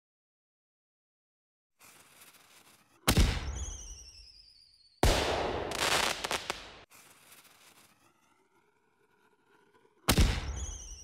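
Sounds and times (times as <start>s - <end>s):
falling firework whistle: 3.2s - 6.8s, 10.3s - 11.0s
firework bang: 5.0s - 6.8s
firework crackling: 5.0s - 7.8s.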